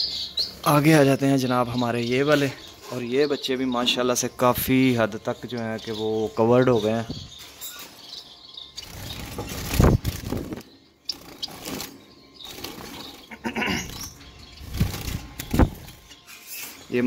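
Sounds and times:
finches chirping: 0.0s - 17.0s
rustling and bumping of wire cage: 8.9s - 14.0s.

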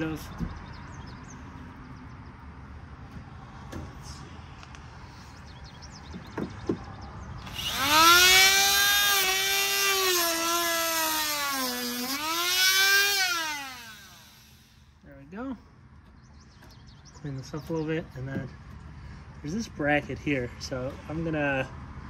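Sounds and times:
cutoff wheel cutting plastic: 7.4s - 14.8s
rotary tool whining: 7.4s - 14.9s.

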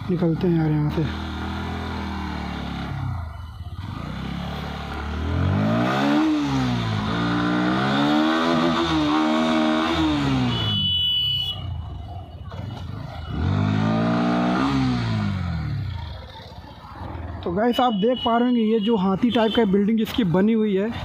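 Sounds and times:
motorcycle engine accelerating: 0.0s - 10.8s, 11.8s - 17.4s.

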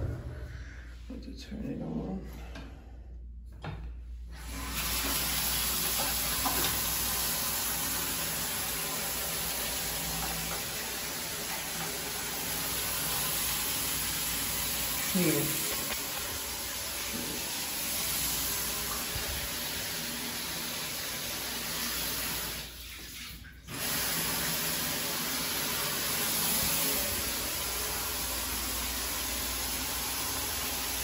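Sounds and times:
shower spraying onto tiles: 4.3s - 31.0s.

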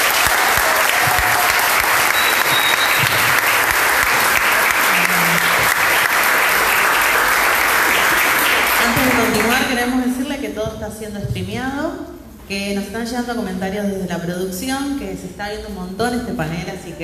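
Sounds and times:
audience applauding: 0.0s - 9.7s
people talking: 4.9s - 5.7s, 8.8s - 17.0s.

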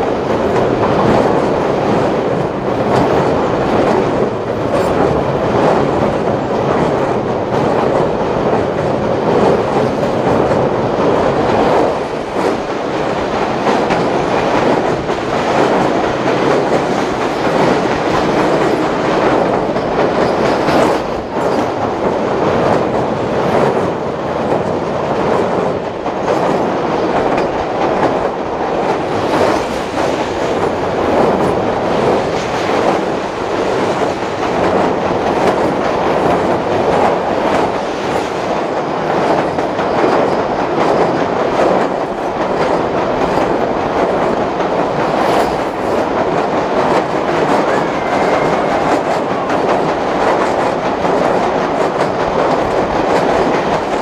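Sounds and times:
train wheels on rail: 0.0s - 54.0s
steel bridge ringing: 47.0s - 54.0s.

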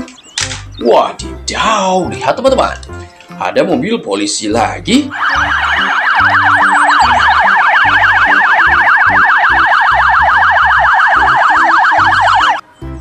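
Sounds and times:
police siren fast warble: 5.1s - 12.6s.

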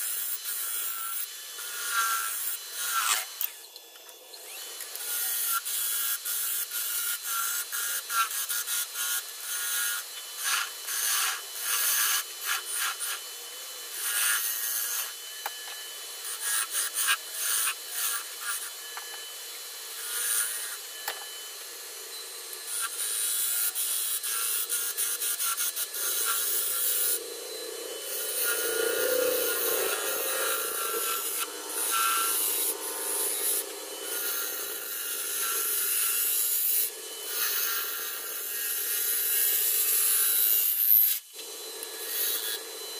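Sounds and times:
lathe gouge scraping wood: 22.1s - 41.1s.

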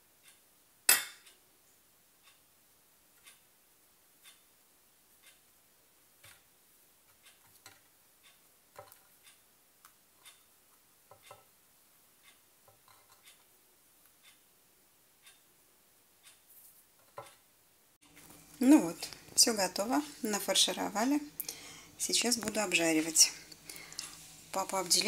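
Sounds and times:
light clicks and taps on glass board: 11.1s - 11.5s.

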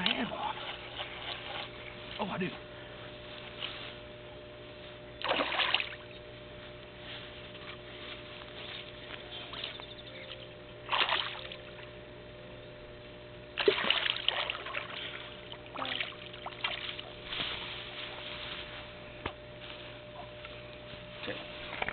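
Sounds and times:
fish splashing in water: 5.2s - 6.1s, 10.3s - 11.9s, 13.5s - 17.2s.

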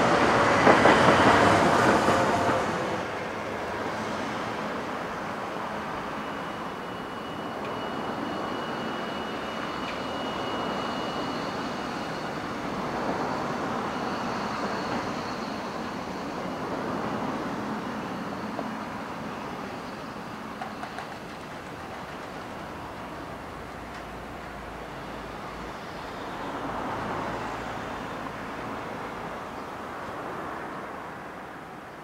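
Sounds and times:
faint high whine: 0.0s - 32.0s
streetcar moving on tracks: 0.0s - 32.0s
cars passing: 23.0s - 31.9s.

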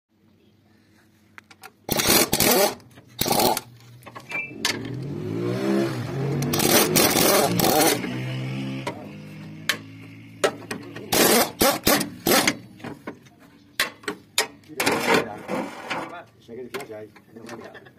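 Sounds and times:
car engine starting and running: 1.7s - 13.3s.

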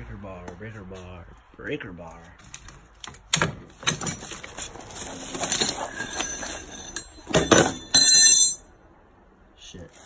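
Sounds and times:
metal hand tools clinking: 5.2s - 8.6s
loud metallic ringing clatter: 6.2s - 8.7s.

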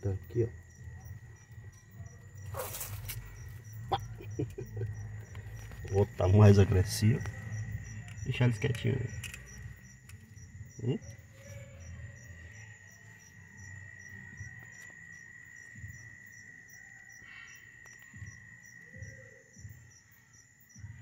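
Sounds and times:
insects trilling: 0.0s - 21.0s.

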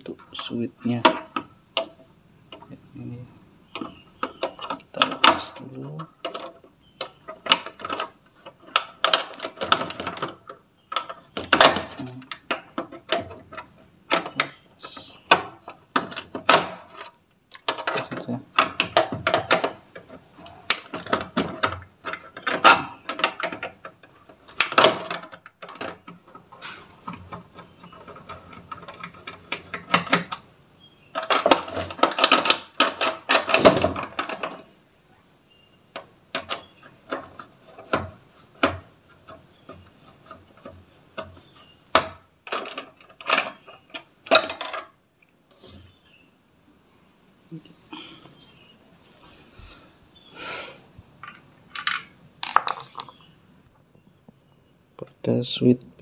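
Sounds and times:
hand tools clicking and tapping: 3.7s - 30.5s.

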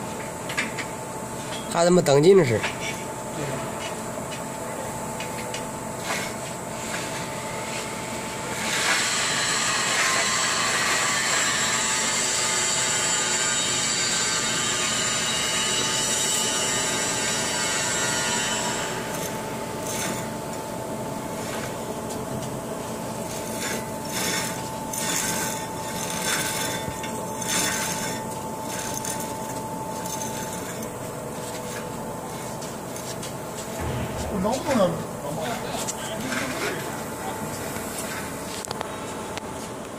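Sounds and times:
machine running with whine: 3.1s - 39.9s
rasping scrapes: 17.2s - 20.3s, 23.2s - 33.8s.

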